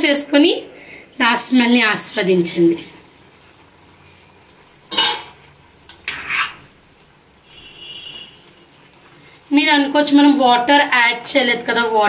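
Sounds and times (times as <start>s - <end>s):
metal spoon scraping pan: 4.9s - 5.4s, 6.0s - 6.7s.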